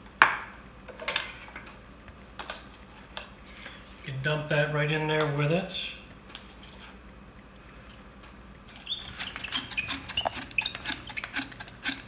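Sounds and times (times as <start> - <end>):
flour sifter squeaking: 8.7 - 12.0.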